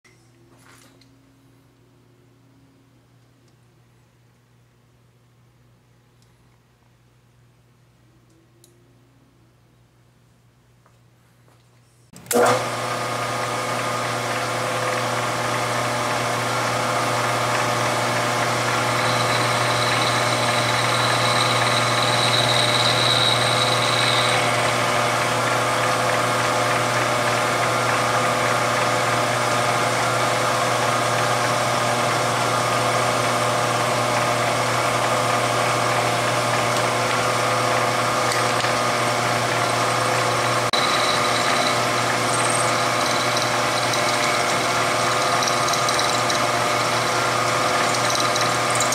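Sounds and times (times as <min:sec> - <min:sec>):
milling machine spindle running: 0:13.7 - 0:48.9
cutter machining steel: 0:14.4 - 0:32.7, 0:35.8 - 0:48.9.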